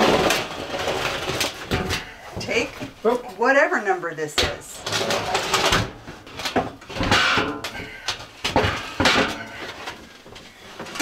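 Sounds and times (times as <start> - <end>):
metal rack knocking and scraping wood: 4.8 - 9.9.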